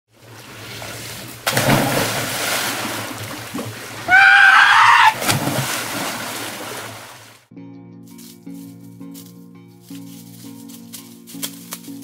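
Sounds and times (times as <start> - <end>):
water rushing down a water slide: 0.1 - 7.4.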